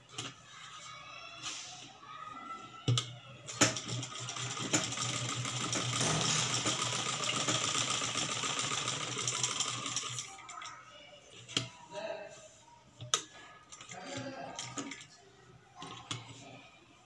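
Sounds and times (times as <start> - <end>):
sewing machine stitching: 3.5 - 10.3.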